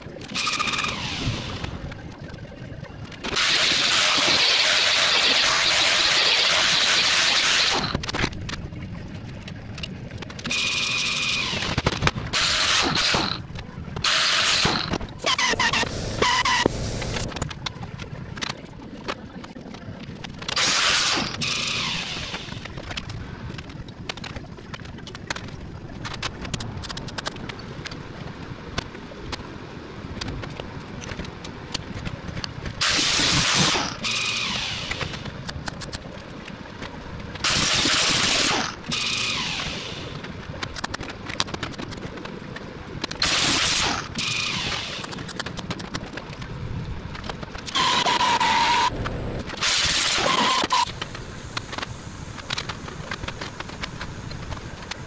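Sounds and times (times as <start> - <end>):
angle grinder cutting sheet metal: 3.4 - 8.0.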